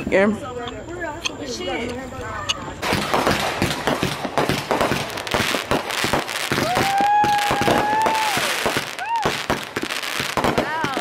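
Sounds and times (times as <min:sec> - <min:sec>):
fireworks crackling and banging: 0:00.0 - 0:11.0
whistling firework: 0:02.8 - 0:11.0.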